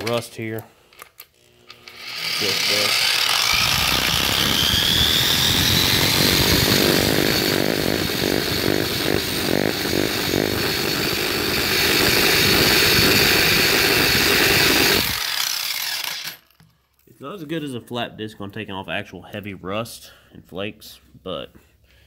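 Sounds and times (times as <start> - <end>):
drum sander grinding steel: 1.8 - 16.4.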